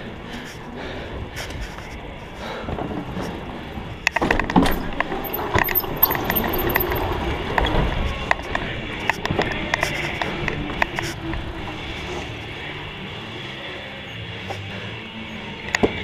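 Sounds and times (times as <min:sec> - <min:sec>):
bike rattling and clattering: 0:00.0 - 0:12.6
bike tyres rolling on wood: 0:01.4 - 0:12.9
sharp knocks and clinks: 0:04.6 - 0:07.2.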